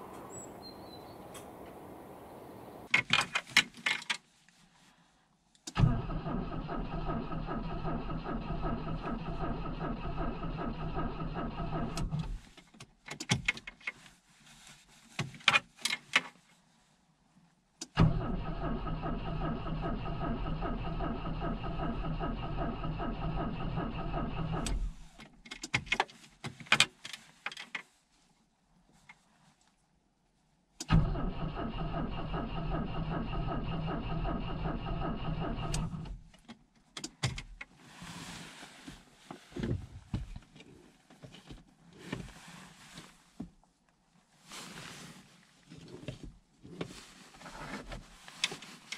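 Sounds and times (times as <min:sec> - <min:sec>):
car engine cranking: 0:05.7 - 0:12.4, 0:17.9 - 0:25.4, 0:30.8 - 0:36.3.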